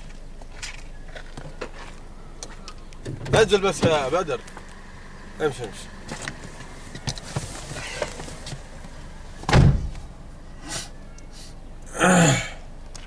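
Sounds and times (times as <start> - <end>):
car door thudding shut: 9.4 - 10.1.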